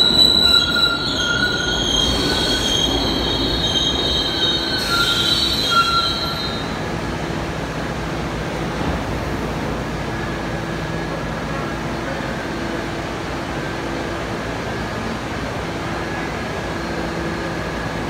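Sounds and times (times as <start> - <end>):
train wheel squeal: 0.0 - 6.9
train humming at platform: 0.0 - 18.0.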